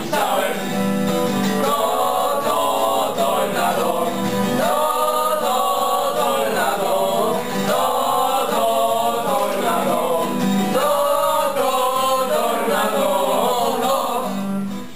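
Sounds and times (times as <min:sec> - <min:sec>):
young men singing together: 0:00.0 - 0:14.8
strummed acoustic guitar: 0:00.0 - 0:14.9.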